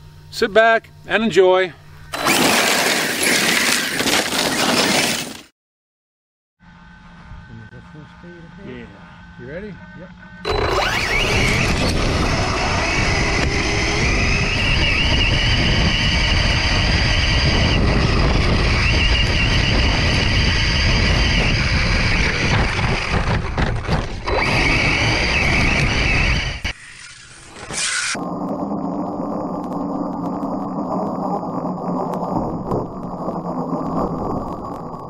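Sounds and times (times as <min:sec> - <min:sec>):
electric motor whining: 0:01.8 - 0:03.7, 0:07.2 - 0:34.8
tyres tearing through dry grass: 0:02.2 - 0:05.5
wind buffeting camera: 0:10.5 - 0:26.8, 0:28.2 - 0:35.0.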